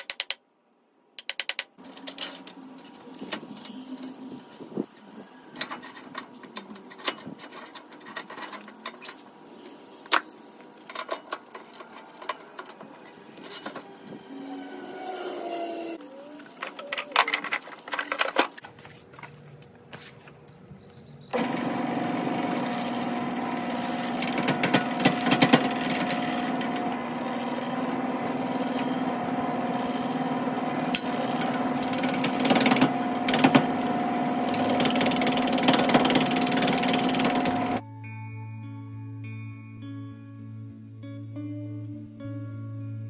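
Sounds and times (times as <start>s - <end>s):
wood lathe setup clicks: 21.3s - 37.8s
gouge cutting wood: 21.4s - 37.8s
lathe running hum: 21.4s - 37.8s.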